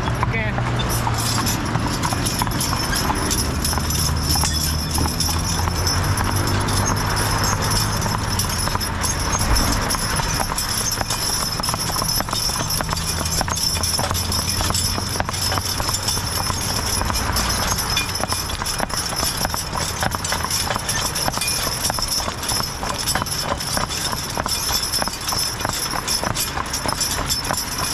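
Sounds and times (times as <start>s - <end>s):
horse hooves on asphalt: 0.0s - 27.9s
road traffic rumble: 0.0s - 27.9s.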